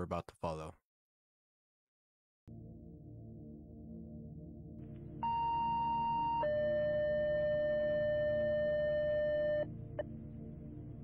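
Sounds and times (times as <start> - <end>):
low steady drone: 2.5 - 11.0.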